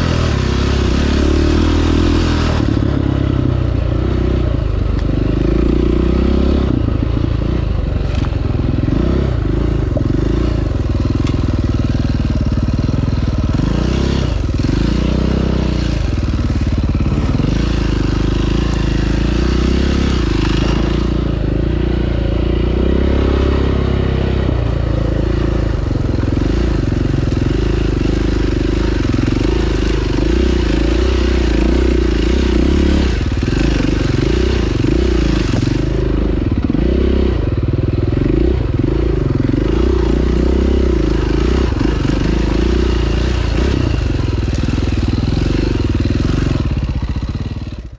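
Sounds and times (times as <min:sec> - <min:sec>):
motorcycle engine revving: 0:00.0 - 0:47.9
wind and riding noise: 0:00.0 - 0:47.9.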